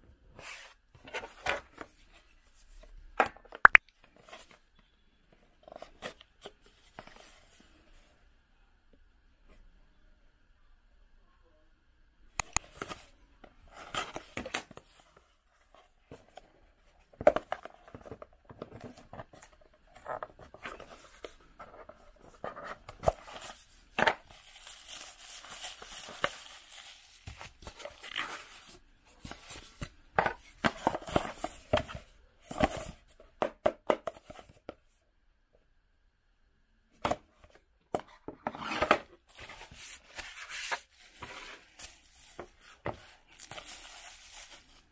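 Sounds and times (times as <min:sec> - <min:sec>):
bubble-wrap rustling: 0:22.2 - 0:29.7, 0:39.3 - 0:44.9.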